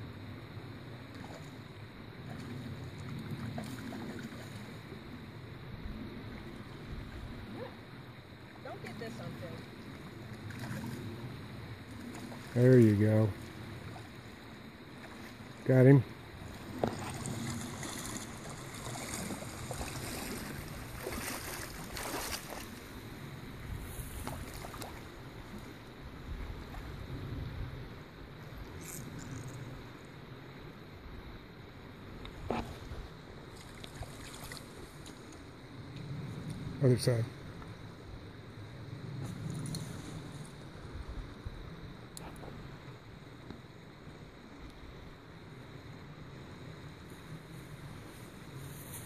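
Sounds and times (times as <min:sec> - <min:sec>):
wind rumbling on microphone: 0:00.0 - 0:49.0
creek water running: 0:00.6 - 0:05.6, 0:06.2 - 0:27.2, 0:32.2 - 0:36.2
fish splashing at surface: 0:16.8 - 0:22.8.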